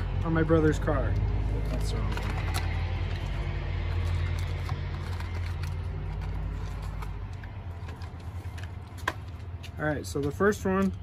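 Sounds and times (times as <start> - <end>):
vehicle engine rumbling: 0.0 - 11.0
foil packet crinkling: 2.1 - 9.0.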